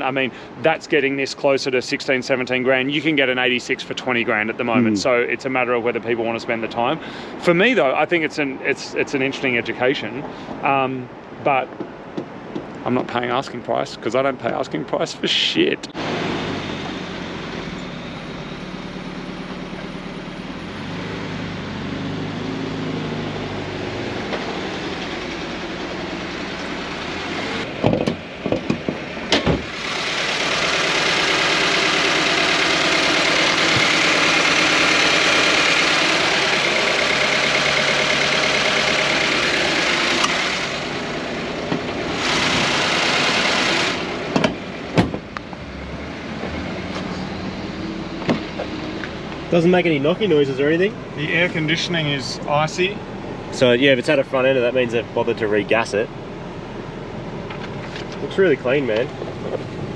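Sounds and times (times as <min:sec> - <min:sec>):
car engine idling: 0:16.6 - 0:21.5, 0:22.2 - 0:59.9.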